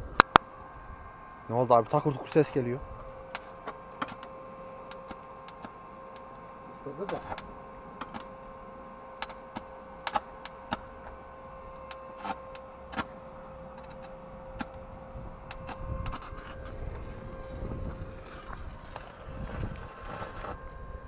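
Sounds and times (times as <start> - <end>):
steady whine: 0.0 - 21.0
welding arc crackling: 9.2 - 11.1.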